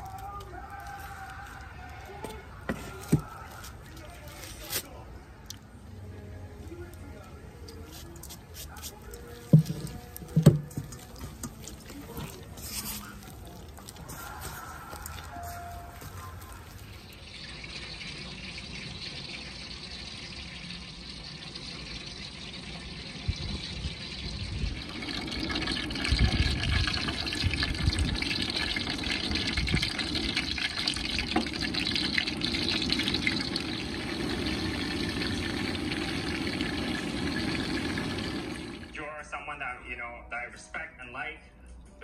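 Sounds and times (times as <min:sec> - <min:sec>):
wings sizzling in hot oil: 0:10.9 - 0:38.9.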